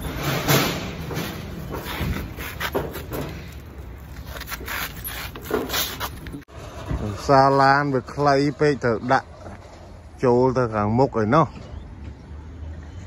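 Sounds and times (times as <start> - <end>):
objects rubbing and scraping: 0.0 - 10.2.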